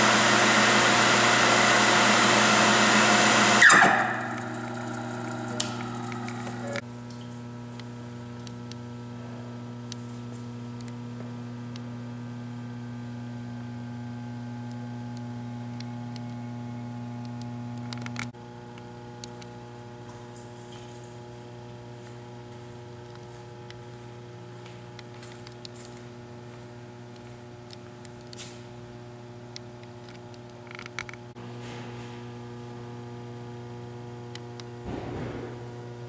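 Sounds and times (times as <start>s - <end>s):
electric motor humming: 0.0s - 8.8s.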